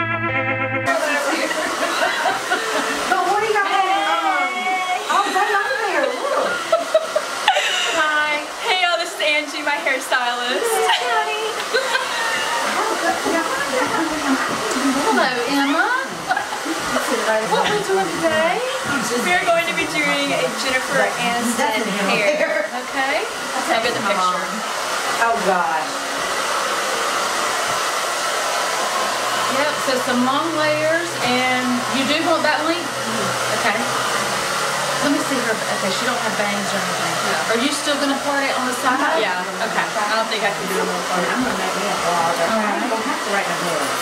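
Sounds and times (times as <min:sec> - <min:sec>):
hair dryer running: 0:00.9 - 0:44.0.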